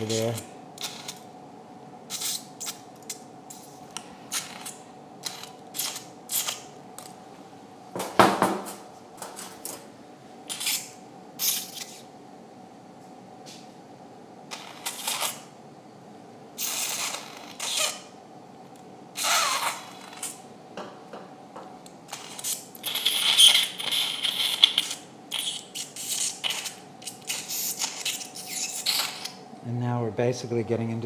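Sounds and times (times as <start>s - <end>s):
faint equipment hum: 0.0s - 31.0s
surgical suction hissing and slurping: 19.2s - 20.4s, 22.1s - 29.4s.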